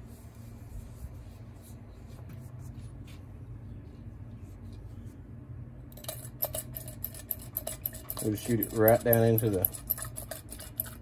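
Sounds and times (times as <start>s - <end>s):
rag rubbing on plastic housing: 6.6s - 11.0s.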